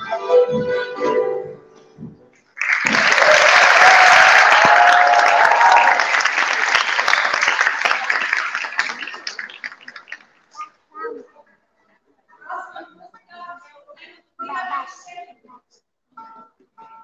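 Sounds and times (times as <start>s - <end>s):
people cheering: 2.6s - 10.2s
audience applause: 2.6s - 10.4s.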